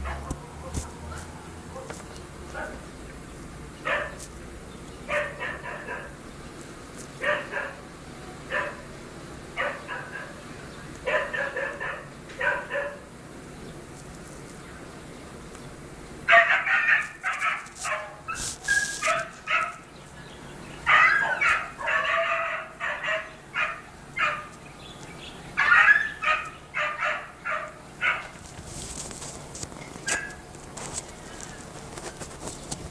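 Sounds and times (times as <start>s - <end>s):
dog barking: 0.0s - 2.9s, 3.8s - 4.2s, 5.1s - 6.2s, 7.2s - 7.8s, 8.5s - 8.9s, 9.6s - 10.4s, 11.0s - 13.1s, 16.3s - 19.8s, 20.8s - 24.5s, 25.6s - 28.4s.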